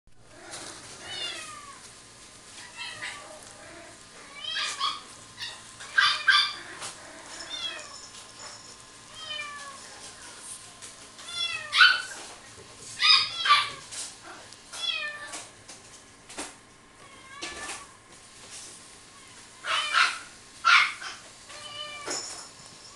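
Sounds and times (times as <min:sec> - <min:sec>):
puppy whining: 0:02.6 - 0:10.4, 0:11.2 - 0:12.2, 0:13.0 - 0:15.3.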